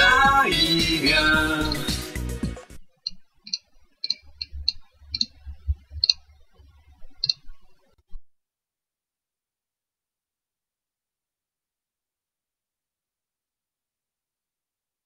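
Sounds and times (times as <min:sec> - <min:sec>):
computer clicks: 0:03.0 - 0:05.4, 0:06.0 - 0:06.2, 0:07.1 - 0:07.7
faint low hum: 0:03.6 - 0:08.2.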